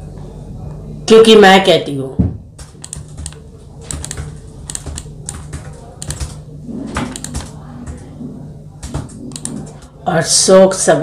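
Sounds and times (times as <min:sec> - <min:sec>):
steady low hum: 0:00.0 - 0:11.0
laptop keyboard key clicks: 0:02.8 - 0:05.4.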